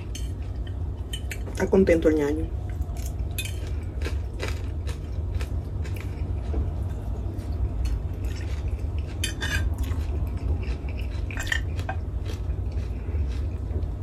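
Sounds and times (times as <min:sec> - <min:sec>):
steady low hum: 0:00.0 - 0:14.0
fork scraping a plate: 0:07.8 - 0:10.0.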